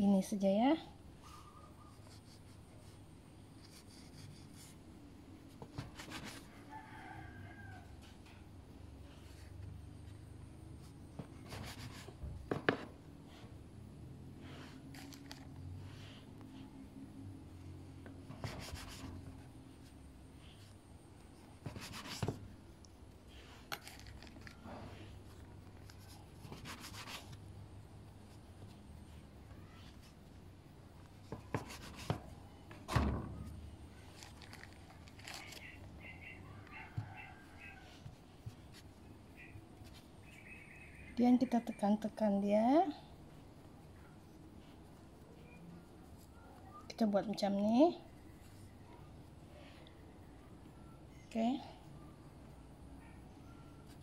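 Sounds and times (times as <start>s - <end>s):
rooster crowing faintly: 6.2s - 9.5s, 34.4s - 38.8s.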